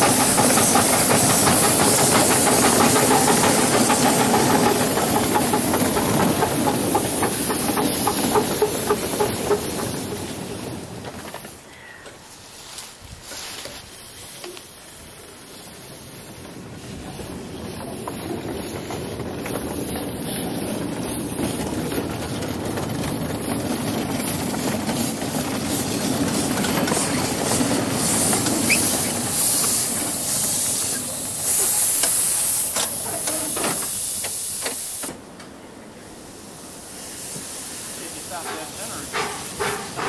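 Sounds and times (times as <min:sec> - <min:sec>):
steam locomotive hissing: 0:00.0 - 0:11.7, 0:12.3 - 0:40.0.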